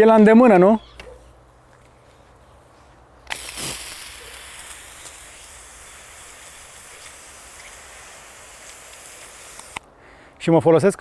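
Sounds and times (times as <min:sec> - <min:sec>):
water spraying from hose nozzle: 0:03.3 - 0:09.8.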